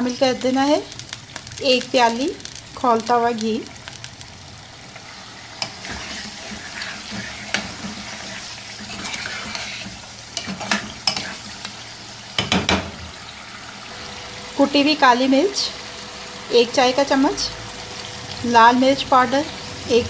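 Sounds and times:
chicken sizzling in a wok: 0.0s - 20.0s
spatula scraping a wok: 5.0s - 11.9s
spatula knocking against pan: 12.4s - 13.0s.

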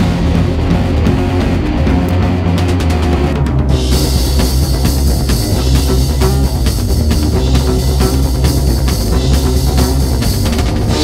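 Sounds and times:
drum kit: 0.0s - 11.0s
guitar: 0.0s - 11.0s
rock band playing: 0.0s - 11.0s.

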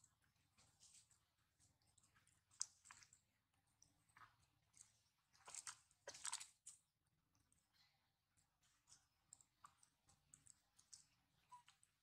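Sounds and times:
faint small clicks: 8.9s - 12.0s.

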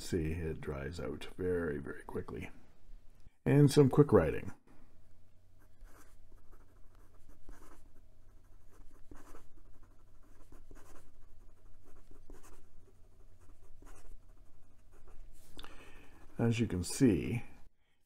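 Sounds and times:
pen nib scratching on paper: 5.6s - 16.5s.

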